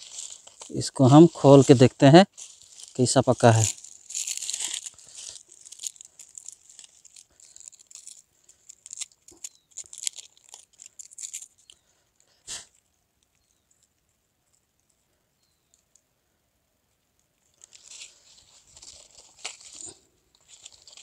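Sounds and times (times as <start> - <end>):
dry leaves crinkling: 0.0 - 12.3, 17.5 - 21.0
eggshell crackling as peeled: 2.4 - 11.8, 17.4 - 21.0.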